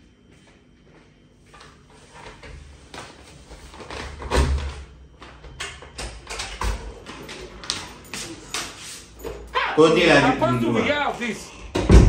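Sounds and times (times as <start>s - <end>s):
heavy door thump: 11.7s - 12.0s.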